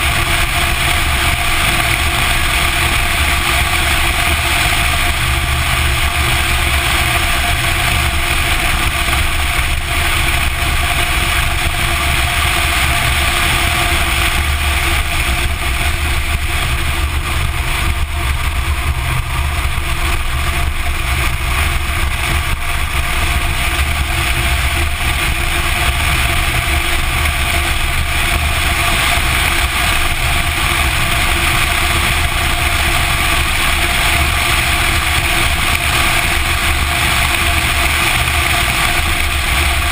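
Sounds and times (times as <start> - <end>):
car engine running: 0.0 - 39.9
road noise: 0.0 - 39.9
wind rush: 0.0 - 39.9.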